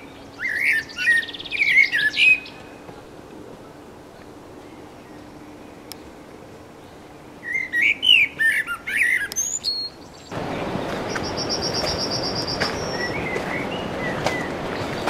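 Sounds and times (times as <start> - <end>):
high bird trill: 0.0 - 2.9, 6.8 - 15.0
blackbird fluting song: 0.0 - 3.0, 3.6 - 15.0
steady rushing noise: 0.0 - 9.3, 9.9 - 15.0.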